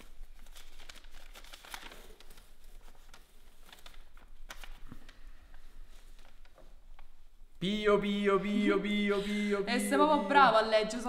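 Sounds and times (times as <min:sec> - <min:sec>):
paper rustling and crinkling: 0:00.0 - 0:07.4.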